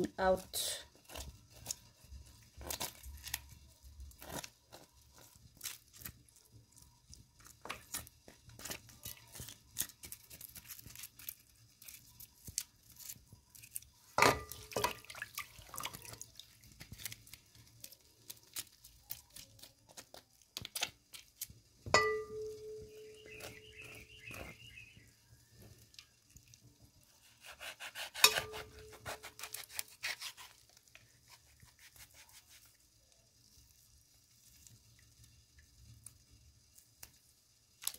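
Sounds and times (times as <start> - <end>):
water dripping and splashing: 4.1 - 21.8, 22.4 - 27.1
knife knocking ringing metal basin: 22.0 - 23.1
knife scraping fish scales: 27.2 - 32.8.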